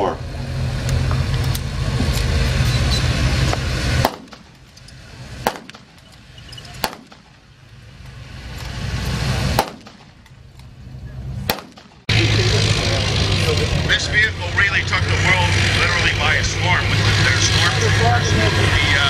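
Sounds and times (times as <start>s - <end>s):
half-track engine running: 0.0s - 19.0s
rifle shots: 4.0s - 4.7s, 5.4s - 6.2s, 6.8s - 7.5s, 9.5s - 10.2s, 11.4s - 12.1s.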